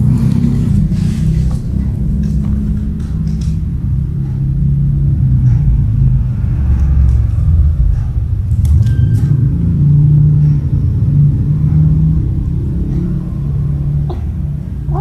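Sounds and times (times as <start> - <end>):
loud low rumble: 0.0 - 15.0
steady hum shifting in pitch: 0.0 - 15.0.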